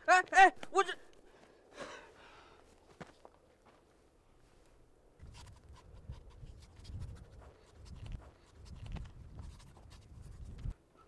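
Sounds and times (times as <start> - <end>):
pen scratching on paper: 5.2 - 10.7.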